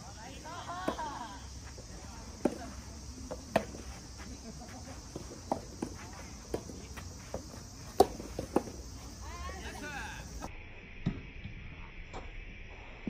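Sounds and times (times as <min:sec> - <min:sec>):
racket hitting tennis ball: 0:02.4 - 0:03.9, 0:05.0 - 0:09.0
ball bouncing on court: 0:05.4 - 0:08.8.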